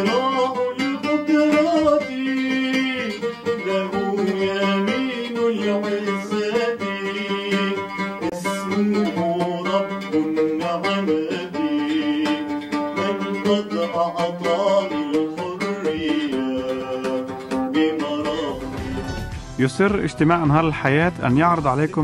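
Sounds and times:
man singing: 0.0 - 22.0
oud plucking: 0.0 - 22.0.

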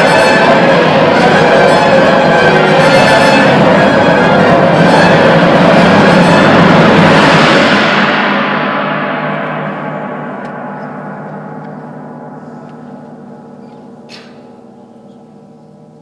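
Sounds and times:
orchestra loud chord: 0.0 - 16.0
tam-tam stroke ringing: 0.0 - 16.0.

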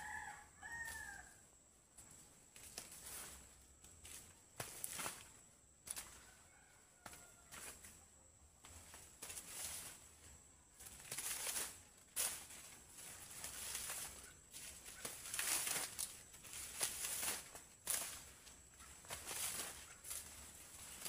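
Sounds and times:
dry leaves rustling: 2.0 - 6.5, 8.7 - 21.0
corn stalks cracking: 10.8 - 21.0.

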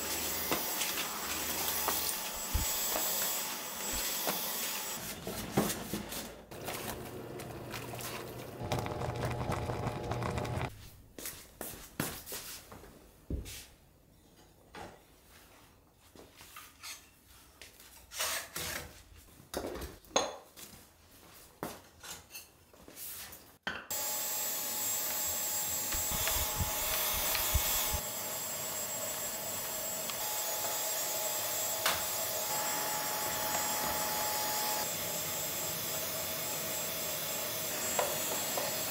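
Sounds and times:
vacuum cleaner whining: 0.0 - 10.7, 23.9 - 38.9.

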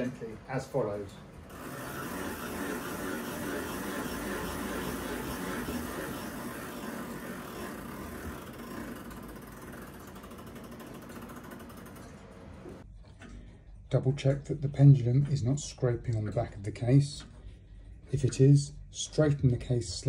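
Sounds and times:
clock winding ratchet clicking: 1.5 - 12.6.

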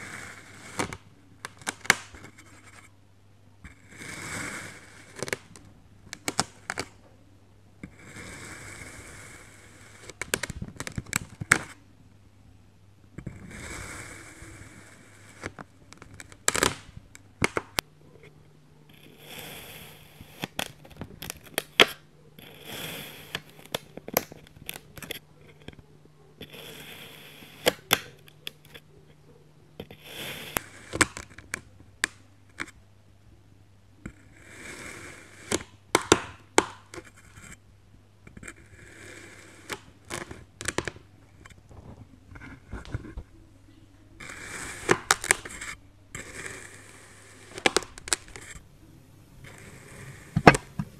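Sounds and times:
faint steady hum: 0.0 - 50.9
knife cutting kinetic sand: 3.9 - 5.4, 13.4 - 16.8, 18.9 - 25.8, 26.4 - 28.8, 29.8 - 31.5, 34.1 - 37.6, 38.4 - 40.3, 44.2 - 48.6.

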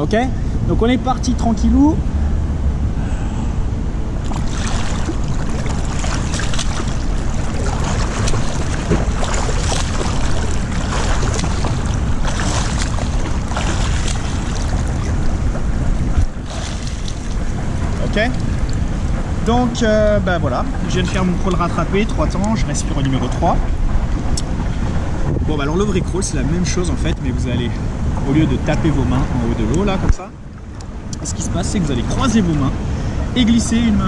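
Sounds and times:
wind on microphone: 1.6 - 34.0
feet kicking water: 4.2 - 19.2
swimmer splashing: 4.2 - 19.8.

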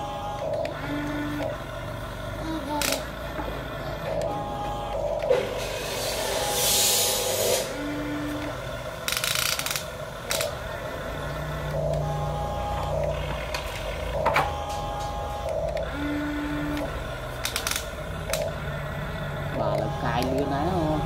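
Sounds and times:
toy electric motors whining: 0.0 - 21.0
sand hissing and scraping: 5.6 - 7.8.

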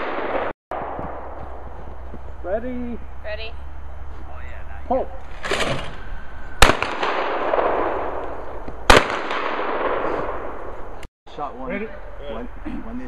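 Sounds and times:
shotgun shots echoing: 0.0 - 1.4, 6.6 - 10.8.

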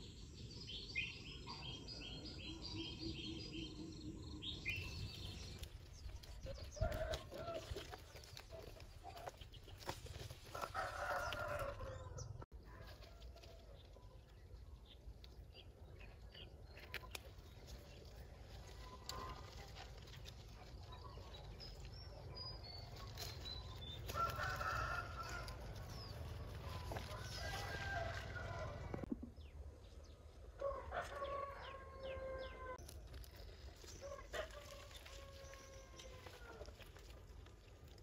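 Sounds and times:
rooster crowing: 10.6 - 12.2, 24.1 - 25.6, 27.1 - 29.0, 30.6 - 32.8.

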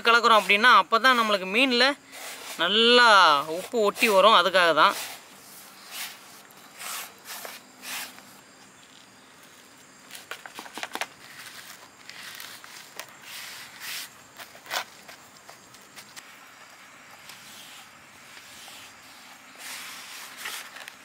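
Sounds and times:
hand rubbing salt paste on fish: 2.1 - 8.2, 12.1 - 14.2, 17.3 - 20.8.

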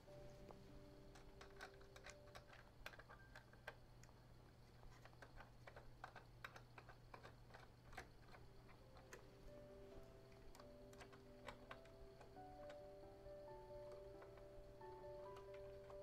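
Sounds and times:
low steady hum: 0.0 - 16.0
hardware clicks and taps: 4.8 - 9.4.

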